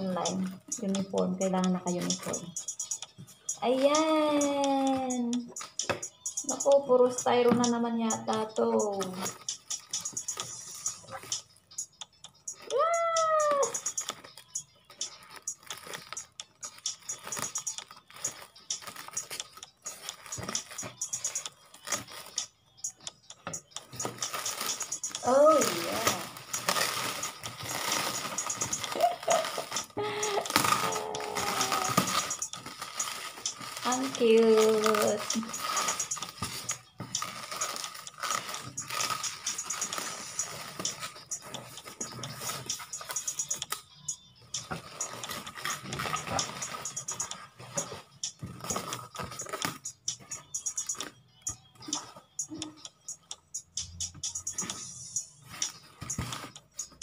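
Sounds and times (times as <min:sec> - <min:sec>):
scissors cutting plastic: 0:07.5 - 0:11.5, 0:12.5 - 0:43.8, 0:44.6 - 0:51.2
plastic wrapping crinkling: 0:12.6 - 0:22.4, 0:23.8 - 0:43.8, 0:44.6 - 0:50.4.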